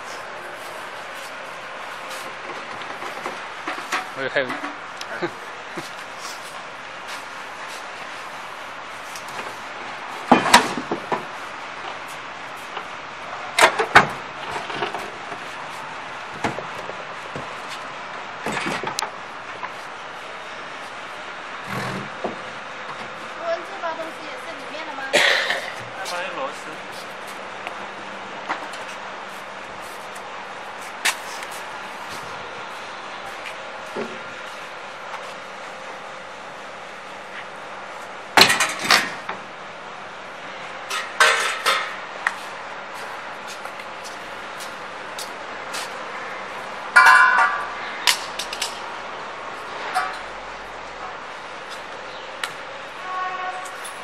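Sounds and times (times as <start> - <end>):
metal frame clanking against crate: 40.9 - 42.0.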